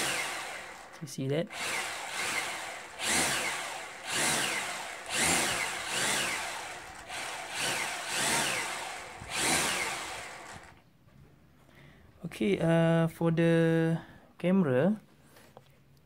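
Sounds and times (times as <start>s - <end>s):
drone motors revving: 0.0s - 10.8s.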